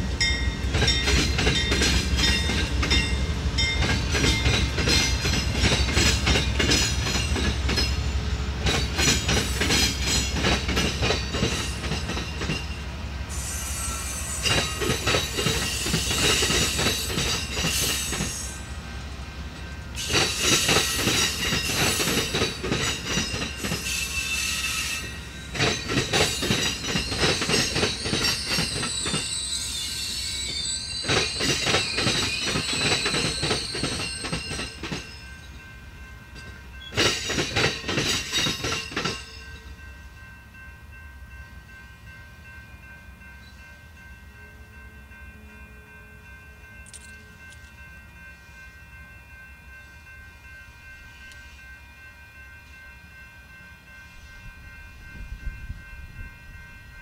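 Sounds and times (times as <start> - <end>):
train wheels clattering over crossing: 0.0 - 18.6, 19.6 - 39.6
train rumbling: 0.0 - 57.0
high wheel squeal: 13.3 - 16.5, 28.0 - 34.6.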